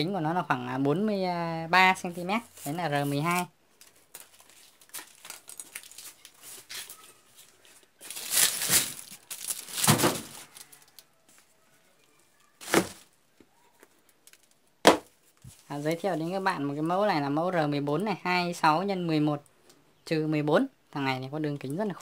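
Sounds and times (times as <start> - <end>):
plastic wrapping crinkling: 2.2 - 16.4.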